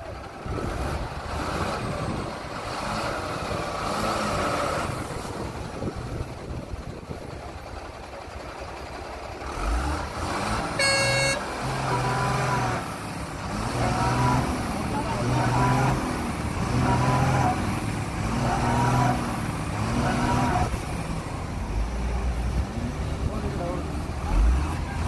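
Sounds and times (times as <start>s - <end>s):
heavy engines rumbling: 0.0s - 25.0s
horn blast: 10.7s - 12.2s.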